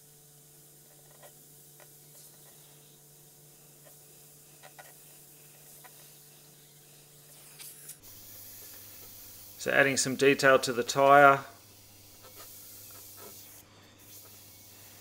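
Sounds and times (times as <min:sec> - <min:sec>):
airbrush spraying hiss: 0:00.4 - 0:15.0.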